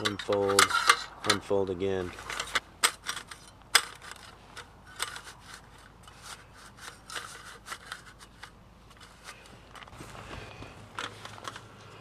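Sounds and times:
metal table clicks and scrapes: 0:00.0 - 0:01.4, 0:02.2 - 0:10.0.

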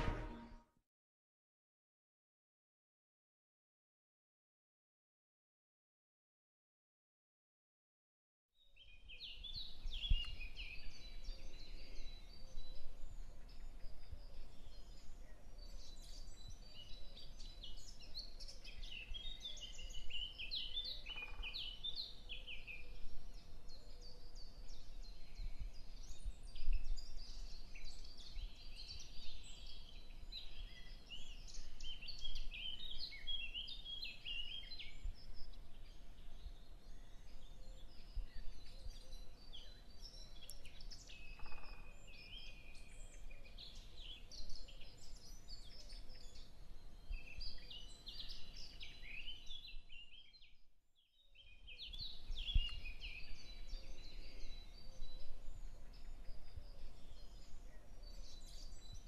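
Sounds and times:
birds chirping and singing: 0:08.9 - 0:50.6, 0:51.4 - 0:59.0.

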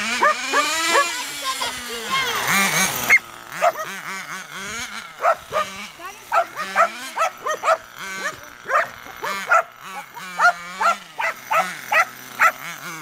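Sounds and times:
dogs barking: 0:00.0 - 0:01.2, 0:03.1 - 0:04.1, 0:05.2 - 0:12.7.

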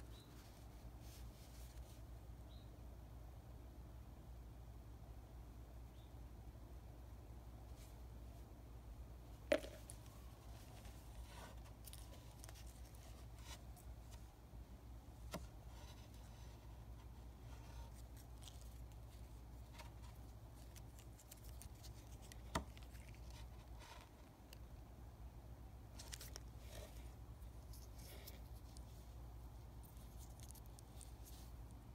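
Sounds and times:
low steady hum: 0:00.0 - 0:31.9
hands handling a wristwatch: 0:09.5 - 0:14.3.

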